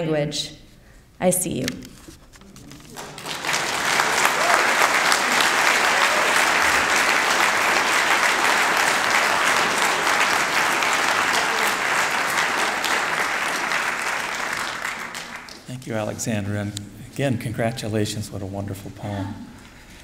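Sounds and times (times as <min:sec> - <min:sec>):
audience applauding: 0:02.7 - 0:16.1.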